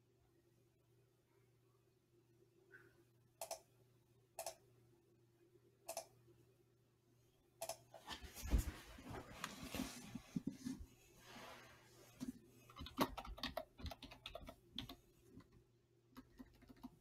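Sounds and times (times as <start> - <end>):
computer mouse clicking: 3.4 - 3.7, 4.4 - 4.6, 5.9 - 6.1, 7.6 - 7.8, 12.7 - 17.0
keyboard typing: 3.4 - 3.7, 12.7 - 17.0.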